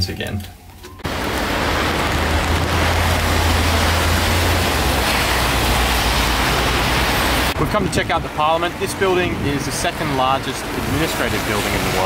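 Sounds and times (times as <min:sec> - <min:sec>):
steady rain hiss: 0:01.0 - 0:12.0
deep low rumble: 0:01.1 - 0:07.6.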